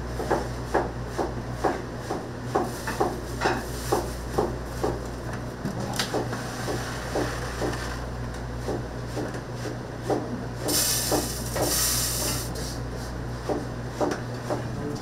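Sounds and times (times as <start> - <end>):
burst of hissing: 10.7 - 12.5.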